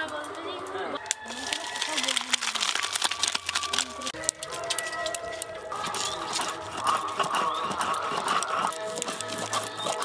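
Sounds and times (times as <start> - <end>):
music with held notes: 2.8 - 10.0
stone roller grinding on stone: 5.8 - 10.0.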